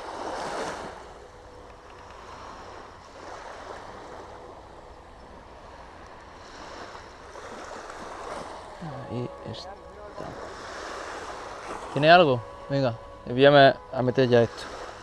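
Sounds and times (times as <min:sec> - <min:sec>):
waves washing on shingle: 0:05.6 - 0:15.0.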